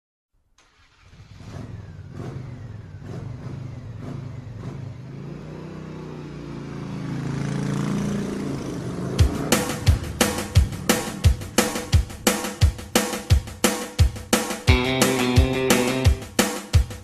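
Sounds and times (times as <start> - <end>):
car engine revving: 0.6 - 12.5.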